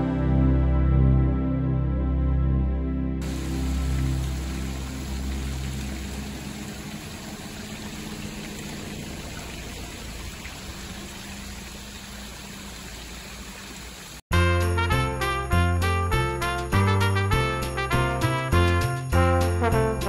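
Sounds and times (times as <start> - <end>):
fountain water splashing: 3.2 - 14.2
bright music with bells: 14.4 - 20.0.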